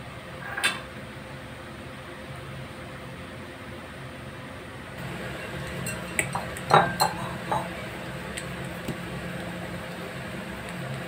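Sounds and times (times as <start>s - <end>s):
steady background hum: 0.0s - 11.0s
metal pizza pan clinking: 5.3s - 7.8s.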